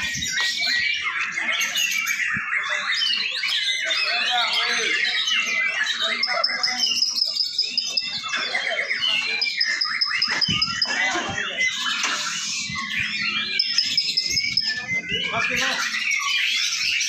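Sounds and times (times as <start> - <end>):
many birds singing: 0.0 - 17.0
long high bird trill: 4.5 - 11.0, 12.2 - 17.0.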